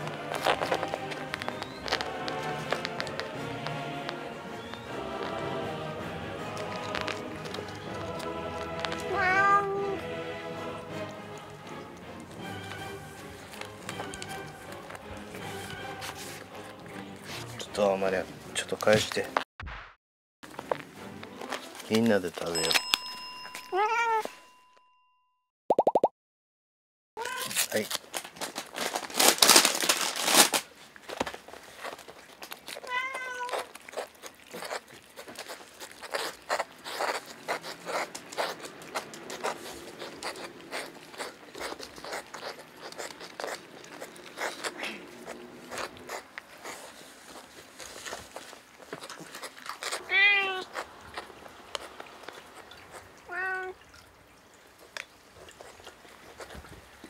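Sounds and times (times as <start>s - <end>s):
plastic bag crinkling: 0.0s - 3.4s, 27.2s - 53.1s
cats licking and chewing: 0.0s - 19.3s, 20.5s - 24.3s, 27.2s - 57.0s
cat meowing: 9.0s - 10.0s, 23.7s - 24.3s, 27.2s - 27.6s, 32.8s - 33.7s, 50.0s - 50.8s, 53.3s - 53.8s.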